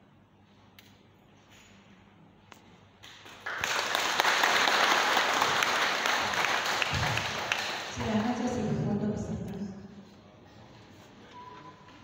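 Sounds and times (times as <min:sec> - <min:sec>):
audience applause: 0:03.2 - 0:08.5.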